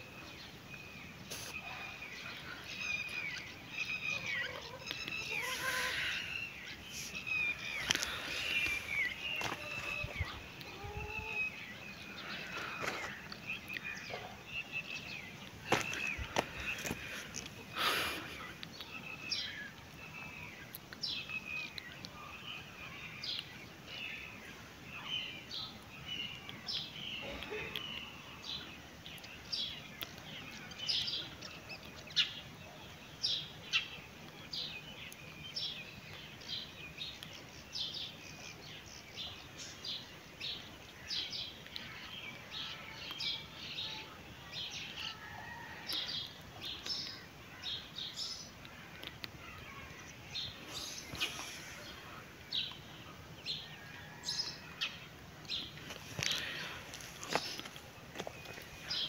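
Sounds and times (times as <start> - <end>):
outdoor background noise: 0.0 - 59.0
small songbirds chirping: 0.0 - 59.0.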